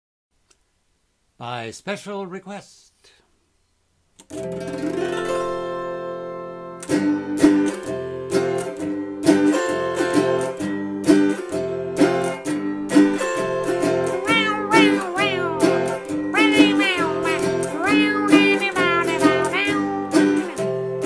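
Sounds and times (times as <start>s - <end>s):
autoharp chord strumming: 4.3s - 21.0s.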